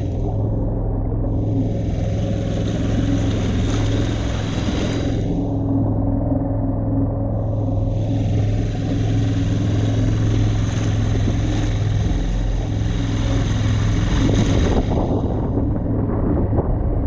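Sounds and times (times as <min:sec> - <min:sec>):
outboard motor running: 0:00.0 - 0:17.0
water hissing and splashing: 0:01.3 - 0:05.8, 0:07.7 - 0:15.4.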